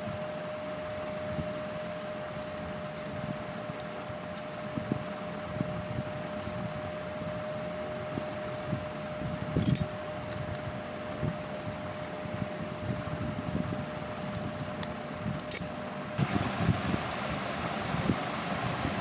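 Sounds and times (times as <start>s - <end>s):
faint hum: 0.0s - 19.0s
sharp clinks: 9.5s - 9.9s, 15.4s - 15.7s.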